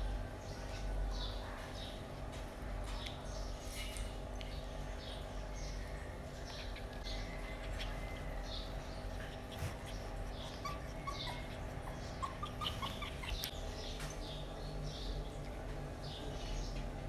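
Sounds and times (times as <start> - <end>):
puppy squeaking and whimpering: 9.3 - 13.6.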